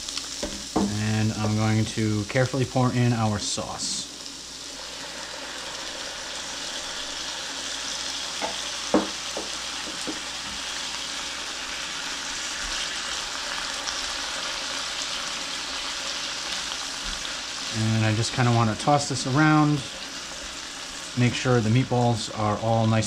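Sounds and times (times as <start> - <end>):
food sizzling in a frying pan: 0.0 - 23.0
spatula knocking against pan: 8.4 - 10.2.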